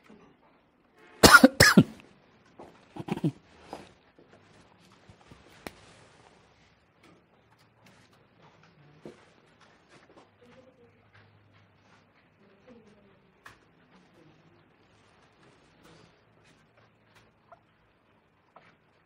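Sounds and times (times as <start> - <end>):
person coughing: 1.2 - 2.0, 3.0 - 3.4
soft throat sounds: 1.2 - 2.0, 3.0 - 3.4.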